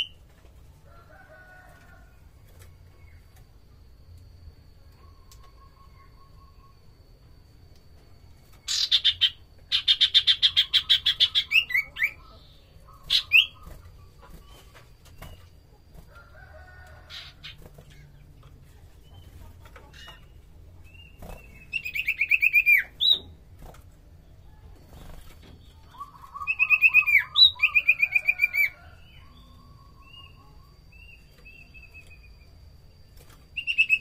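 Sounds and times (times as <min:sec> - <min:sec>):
bird singing shrill notes: 0:21.0 - 0:23.3, 0:25.8 - 0:32.5, 0:33.5 - 0:34.0.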